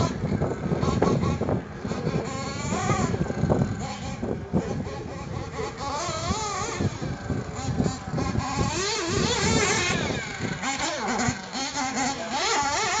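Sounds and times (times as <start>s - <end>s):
rc buggy engines whining: 0.0s - 13.0s.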